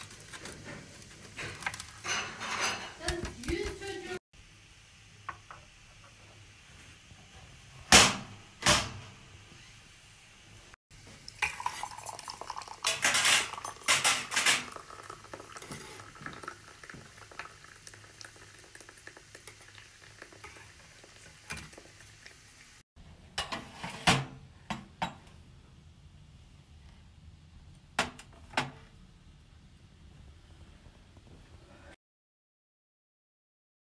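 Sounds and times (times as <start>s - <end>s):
dishes and cutlery clinking: 0.7s - 3.8s, 11.4s - 14.9s.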